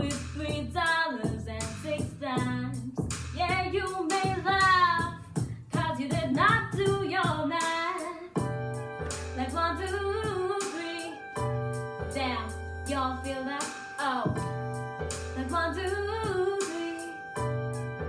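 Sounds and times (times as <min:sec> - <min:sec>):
girl singing: 0:00.0 - 0:08.4, 0:09.2 - 0:11.4, 0:12.0 - 0:14.6, 0:15.2 - 0:17.5
instrumental accompaniment: 0:06.7 - 0:18.0.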